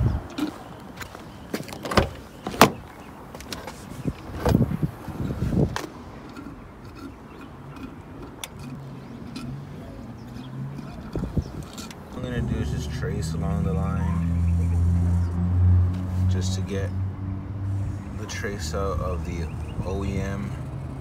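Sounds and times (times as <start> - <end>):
handling noise: 0.2 - 12.2.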